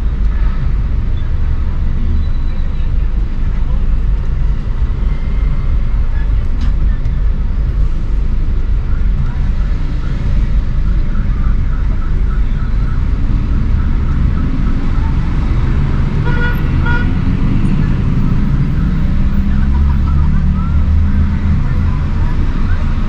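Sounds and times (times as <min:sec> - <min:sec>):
vehicle engines rumbling: 0:00.0 - 0:23.0
car horn toot: 0:16.2 - 0:17.2.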